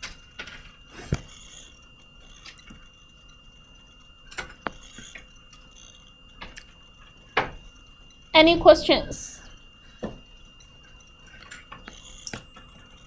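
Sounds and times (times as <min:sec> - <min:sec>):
faint high-pitched whine: 0:00.0 - 0:13.0.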